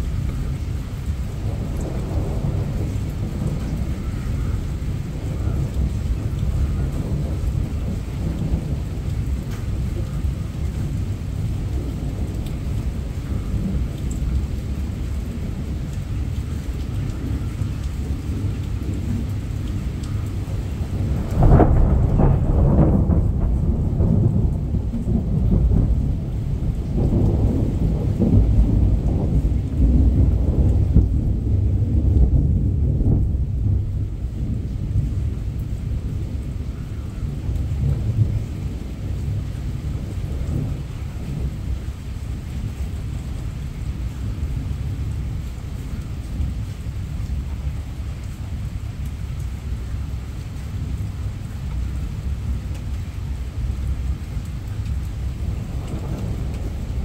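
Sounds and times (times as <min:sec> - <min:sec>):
heavy rain: 0:00.0 - 0:57.0
rumble of thunder: 0:00.0 - 0:57.0
close thunderclap: 0:01.4 - 0:15.8, 0:16.8 - 0:45.4, 0:54.7 - 0:57.0.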